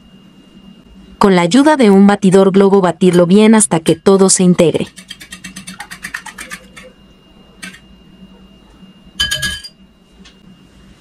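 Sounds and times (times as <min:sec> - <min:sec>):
whisk clinking against glass bowl: 0:04.9 - 0:06.9
ringing glass clink: 0:09.2 - 0:09.8.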